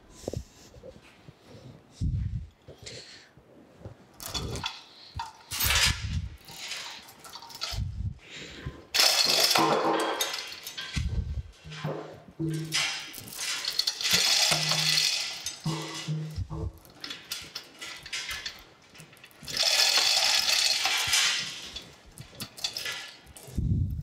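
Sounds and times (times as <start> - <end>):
hoist chain rattling and clinking: 4.2 - 8.1, 8.9 - 23.6
metal clatter: 4.2 - 8.1, 8.9 - 23.6.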